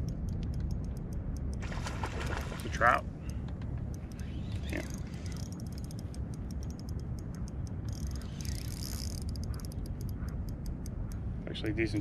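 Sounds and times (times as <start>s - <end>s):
low steady rumble: 0.0s - 12.0s
fishing reel clicking: 3.9s - 10.9s.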